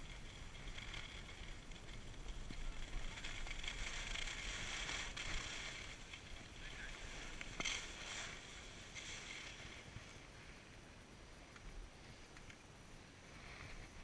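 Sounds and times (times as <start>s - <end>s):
skis scraping over snow: 0.0s - 10.6s, 13.3s - 14.0s.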